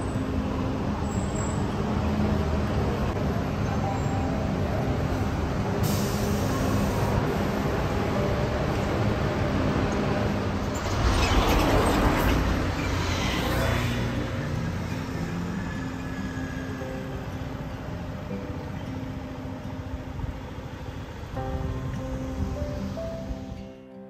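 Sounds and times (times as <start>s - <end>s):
truck passing: 0.0s - 17.4s
road traffic rumble: 0.0s - 23.7s.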